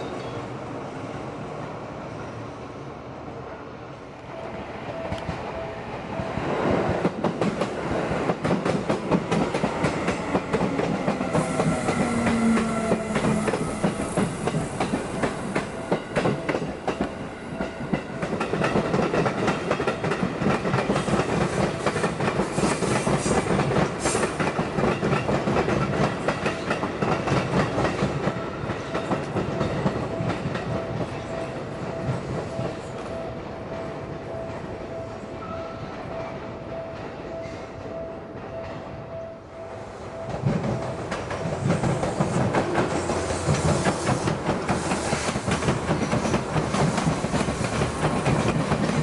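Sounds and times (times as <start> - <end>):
train wheels clacking: 6.3 - 33.2, 40.2 - 49.0
level crossing warning bell: 11.1 - 18.6.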